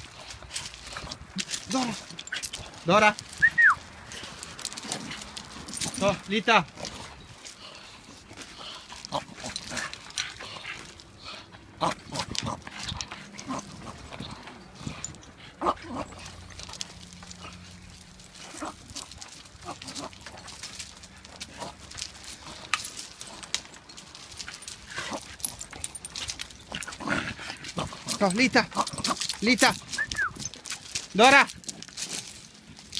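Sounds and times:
dog paws crunching gravel: 0.0s - 32.9s
dog vocal sounds: 24.4s - 30.9s.

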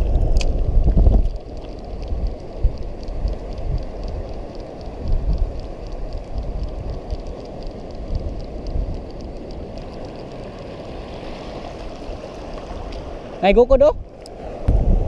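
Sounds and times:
wind rumbling on microphone: 0.0s - 15.0s
fishing reel ticking: 1.3s - 10.9s.

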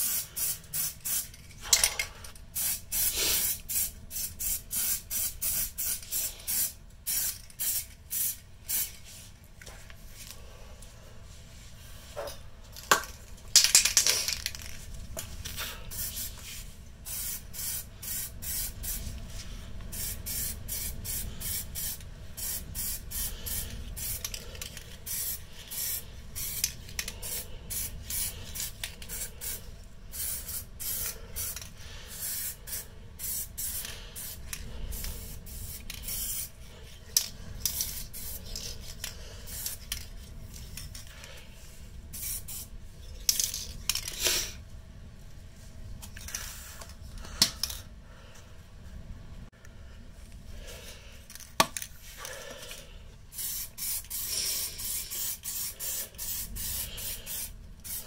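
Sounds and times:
spray can hissing: 0.0s - 1.3s, 2.6s - 8.9s, 15.9s - 16.4s, 17.1s - 19.0s, 19.9s - 24.3s, 25.0s - 36.5s, 53.3s - 58.0s.

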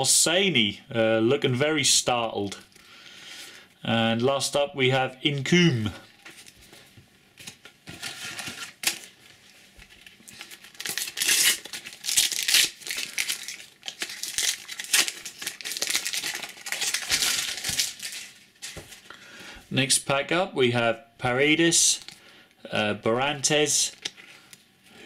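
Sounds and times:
wrapper crinkling: 7.4s - 19.1s
paper packet tearing: 10.2s - 18.8s.

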